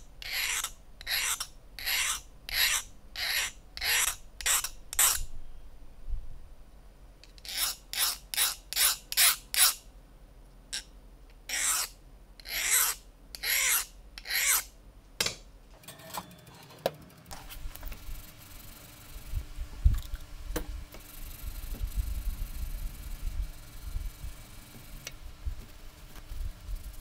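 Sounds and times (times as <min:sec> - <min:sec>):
file scraping steel blade: 0:00.2 - 0:05.2, 0:07.4 - 0:09.8, 0:11.5 - 0:14.7.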